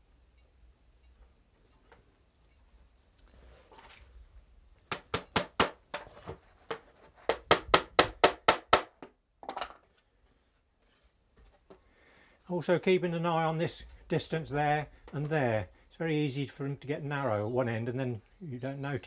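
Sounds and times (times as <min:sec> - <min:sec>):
hammer tapping tacks into wood: 0:04.9 - 0:05.8, 0:07.3 - 0:09.1.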